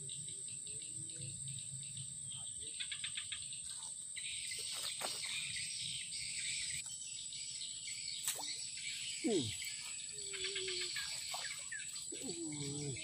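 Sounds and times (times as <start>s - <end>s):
insect buzzing chorus: 0.0s - 13.0s
insects trilling: 0.0s - 13.0s.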